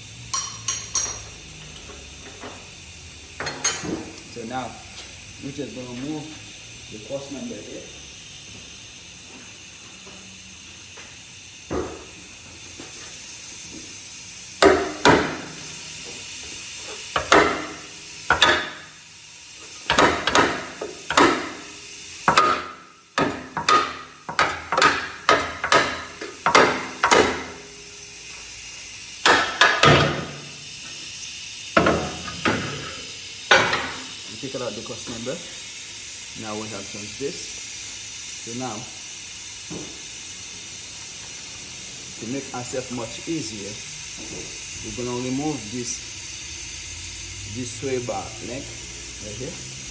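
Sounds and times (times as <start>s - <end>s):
steel bar striking metal: 17.2s - 18.9s, 22.3s - 27.9s.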